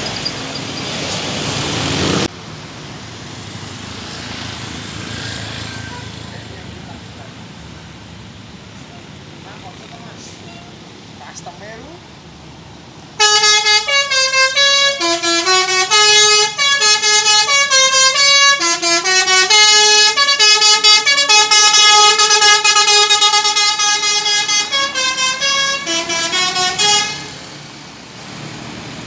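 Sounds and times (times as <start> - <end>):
bus hum: 0.0 - 29.0
road traffic: 0.0 - 29.0
bus horn playing fast melody: 13.2 - 27.4.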